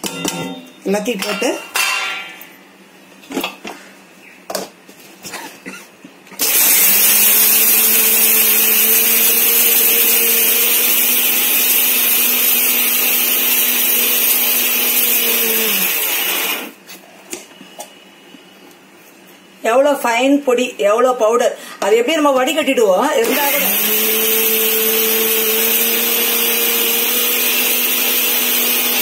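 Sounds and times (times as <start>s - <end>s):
electric mixer grinder whirring: 6.4s - 16.8s, 23.2s - 29.0s.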